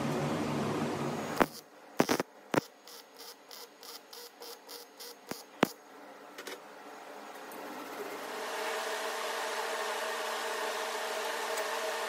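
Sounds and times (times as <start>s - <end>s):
welding arc crackling pops: 1.4s - 2.7s.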